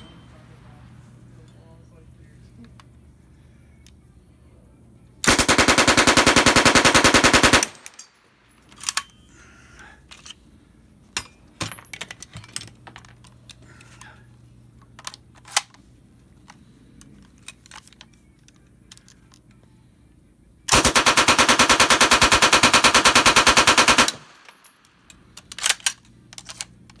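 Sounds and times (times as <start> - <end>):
suppressed gun full-auto bursts: 5.2 - 8.0, 20.7 - 24.7.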